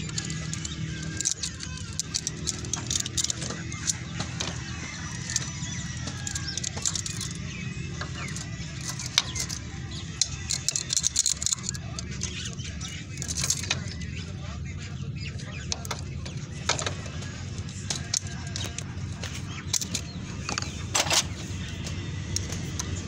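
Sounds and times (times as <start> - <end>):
light metallic clicks and clinks: 0.0 - 14.1
steady low hum: 0.0 - 23.0.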